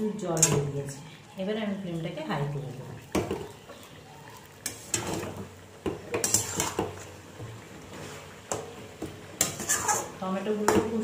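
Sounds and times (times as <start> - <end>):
metal spatula scraping a pot: 4.6 - 5.4, 6.1 - 7.2, 9.4 - 10.2.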